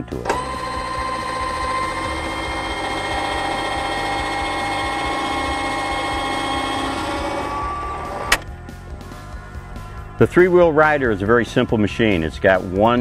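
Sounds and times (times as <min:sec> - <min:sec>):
riding mower engine running: 0:00.1 - 0:08.5.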